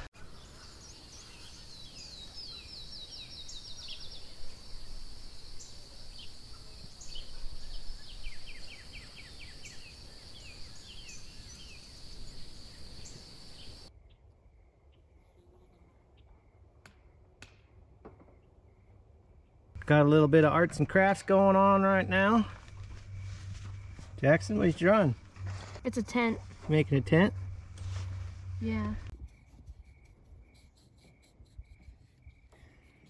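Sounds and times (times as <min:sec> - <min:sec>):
birds chirping: 0:00.0 - 0:13.9
high insect trill: 0:00.8 - 0:13.9, 0:21.0 - 0:33.0.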